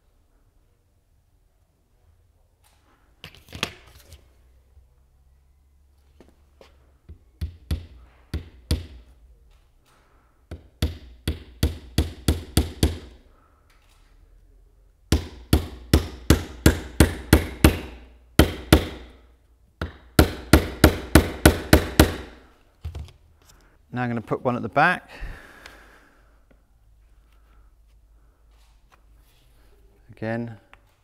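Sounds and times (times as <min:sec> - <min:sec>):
hammer driving nails into wood: 0:07.4 - 0:09.1, 0:10.5 - 0:13.2, 0:15.1 - 0:19.2, 0:19.8 - 0:22.4.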